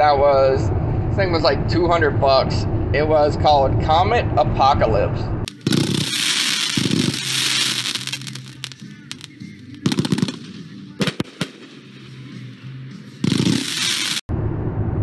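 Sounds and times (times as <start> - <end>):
fireworks hissing and crackling: 5.5 - 12.6, 13.2 - 14.3
sharp fireworks reports: 5.5 - 14.3.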